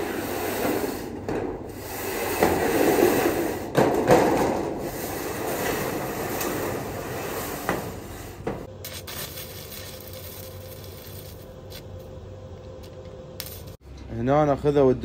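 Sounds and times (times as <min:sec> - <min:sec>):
metal sheet scraping over frame: 0:00.0 - 0:11.5.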